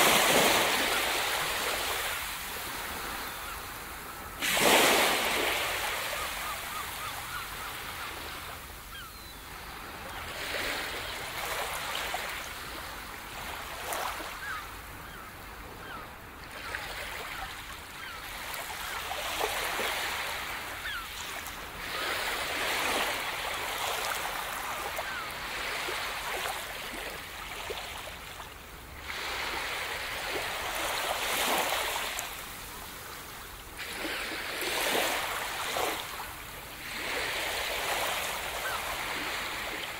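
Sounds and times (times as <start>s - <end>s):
sea surf washing up beach: 0.0s - 3.6s, 4.3s - 7.1s.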